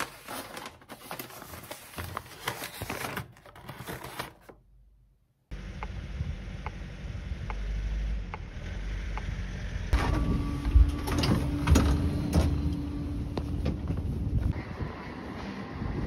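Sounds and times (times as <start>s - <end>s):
low rumble of tram: 5.6s - 16.0s.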